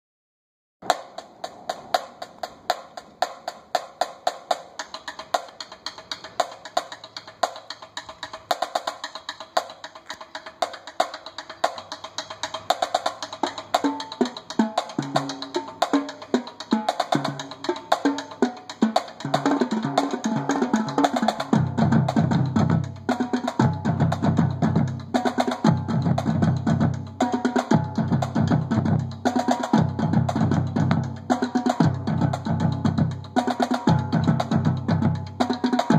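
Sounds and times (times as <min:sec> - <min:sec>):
marching drumline playing: 0:10.9 - 0:35.9.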